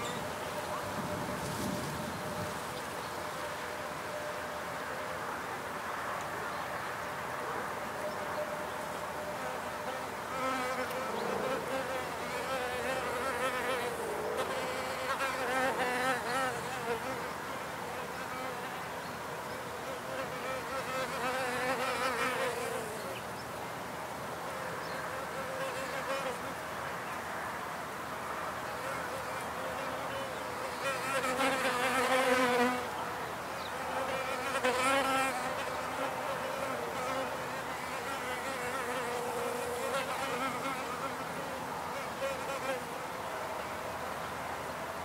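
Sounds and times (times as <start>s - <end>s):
bees buzzing: 9.4s - 17.2s.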